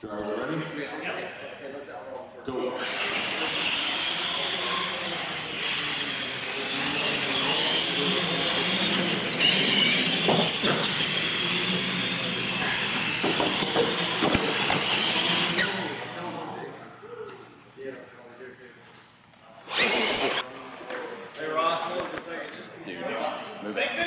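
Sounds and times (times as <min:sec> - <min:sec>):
toy truck motors whining: 0:02.8 - 0:16.2, 0:19.6 - 0:20.4.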